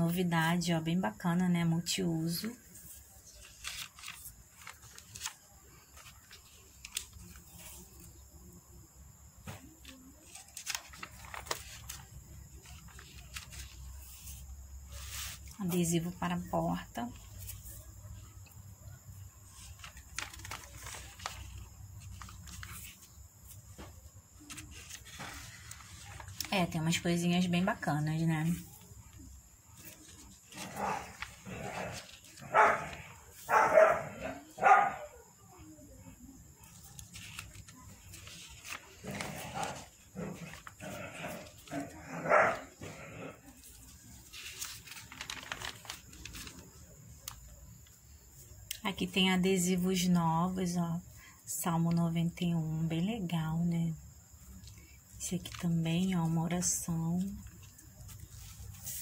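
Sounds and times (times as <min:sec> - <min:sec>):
paper crackles: 0:02.3 - 0:08.2, 0:09.4 - 0:34.6, 0:36.1 - 0:50.1, 0:54.4 - 0:59.0
paper rustling: 0:02.3 - 0:08.2, 0:09.4 - 0:34.5, 0:36.6 - 0:49.1, 0:54.4 - 0:59.0.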